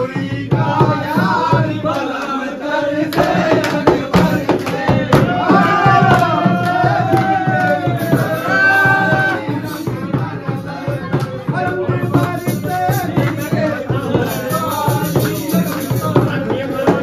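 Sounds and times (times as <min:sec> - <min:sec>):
drums: 0:00.0 - 0:17.0.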